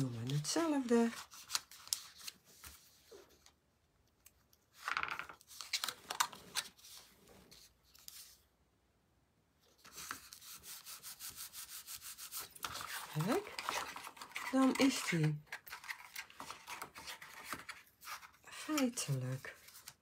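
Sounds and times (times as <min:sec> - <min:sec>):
hands rubbing cardstock: 0:09.8 - 0:19.2.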